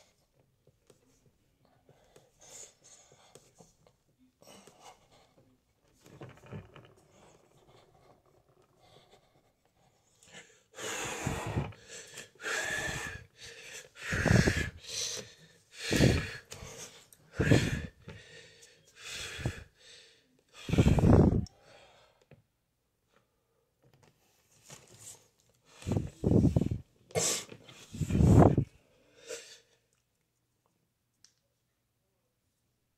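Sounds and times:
man breathing hard: 8.8s - 22.2s.

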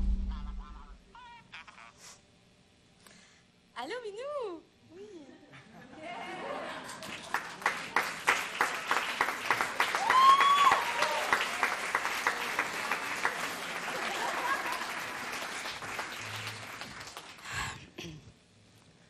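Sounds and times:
audience applauding: 6.6s - 17.7s.

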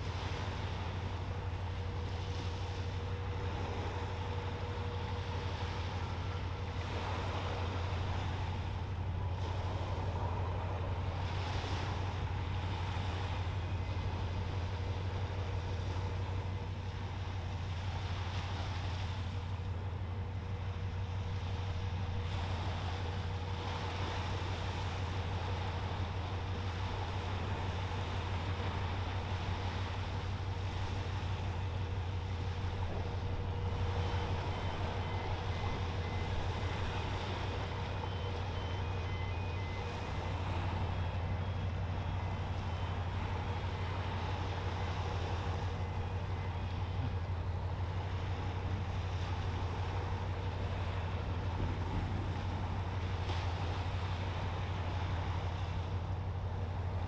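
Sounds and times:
faint steady whine: 0.0s - 57.0s
ship engine drone: 0.0s - 57.0s
faint short high beeps: 33.6s - 43.5s.

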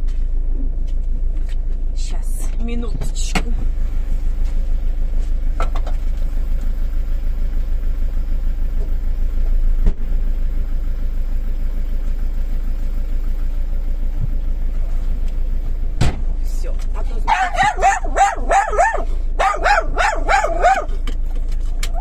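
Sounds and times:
car engine idling: 0.0s - 22.0s
car boot lid slamming: 16.0s - 16.4s.

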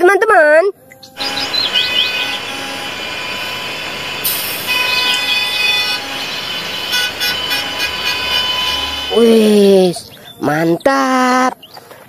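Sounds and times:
bus engines running: 0.8s - 12.0s
tyres hissing on wet pavement: 1.2s - 9.8s.

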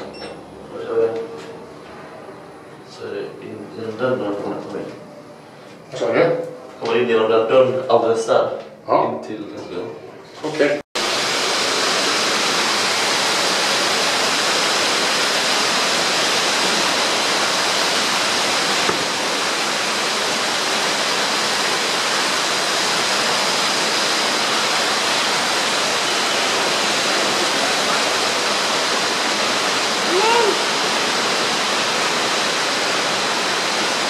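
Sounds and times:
waterfall rushing: 11.0s - 34.0s.

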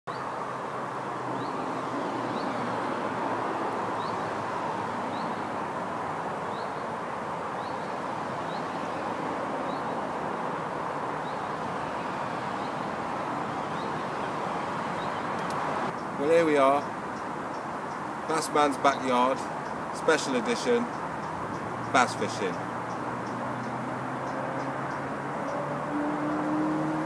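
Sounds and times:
road traffic rushing: 0.1s - 27.0s
bird chirping: 1.3s - 2.7s, 3.9s - 4.3s, 5.1s - 5.5s, 6.4s - 7.0s, 7.6s - 9.0s, 9.6s - 10.0s, 11.2s - 12.9s, 13.5s - 26.8s.

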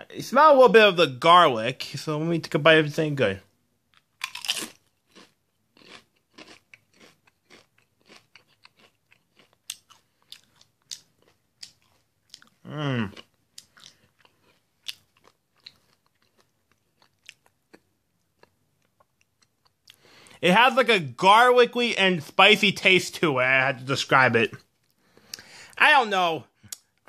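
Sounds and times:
tortilla chip crunching: 3.9s - 20.0s
person humming: 12.7s - 13.1s.

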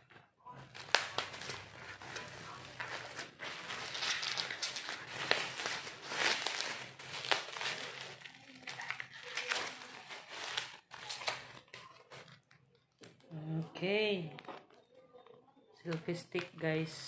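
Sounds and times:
packaging rustling and crinkling: 0.5s - 13.3s.

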